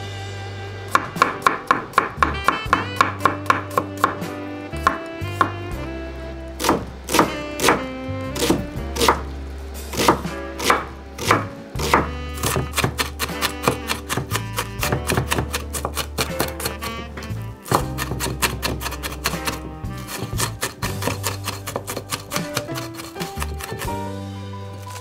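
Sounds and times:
knife tapping on cutting board: 15.0 - 16.7.

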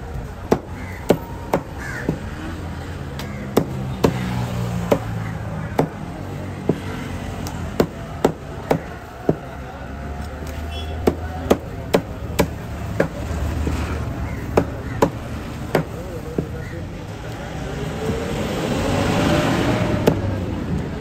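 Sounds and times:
cleaver chopping on wooden block: 0.5 - 2.3, 3.2 - 6.9, 7.7 - 9.5, 11.0 - 16.6.

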